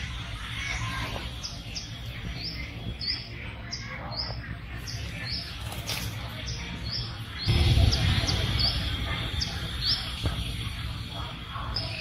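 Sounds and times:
small bird chirping: 0.5s - 12.0s
low steady rumble: 7.5s - 11.7s.

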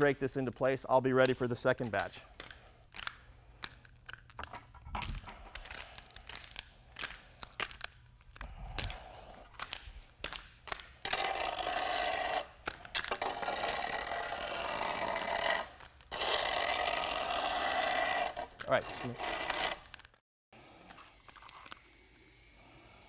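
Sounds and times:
rake scraping through resin: 5.1s - 20.1s.

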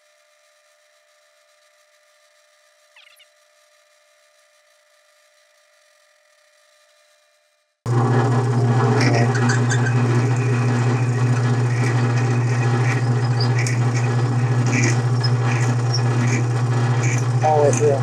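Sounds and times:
metal lathe motor hum: 7.9s - 18.0s
drill squeaking and scratching: 8.5s - 18.0s.

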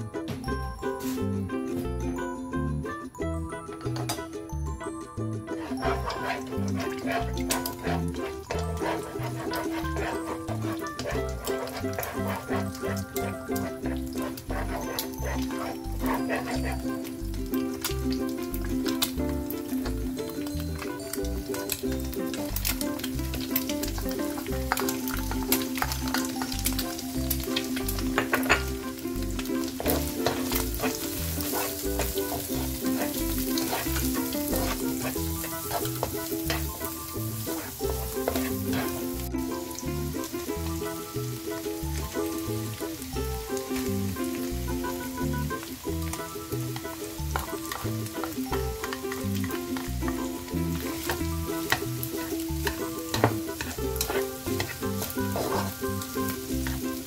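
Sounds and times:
food sizzling in a wok: 0.0s - 1.5s, 3.8s - 57.0s
background music with steady beat: 0.0s - 57.0s
plastic spatula scraping a pan: 5.6s - 16.9s, 29.6s - 39.3s, 50.8s - 55.8s.

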